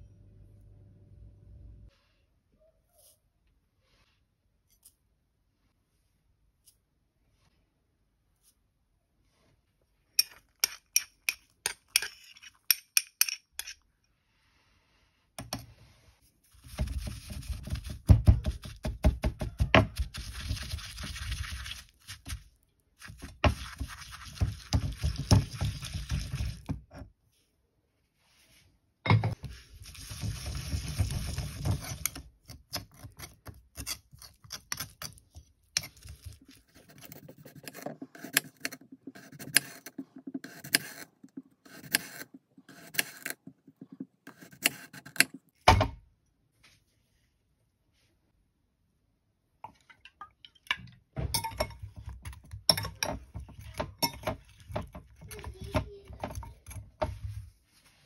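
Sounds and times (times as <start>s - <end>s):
pestle grinding in mortar: 16.6s - 22.4s, 23.0s - 26.7s, 29.9s - 35.2s
knife cutting potato on glass board: 30.4s - 45.5s.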